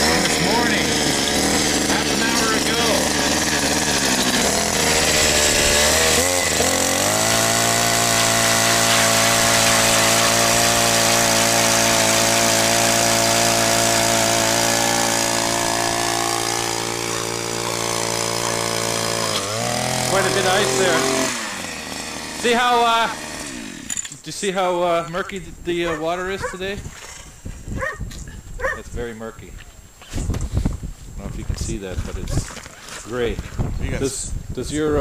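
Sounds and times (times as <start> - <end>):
gas ice auger engine revving: 0.0 - 24.1.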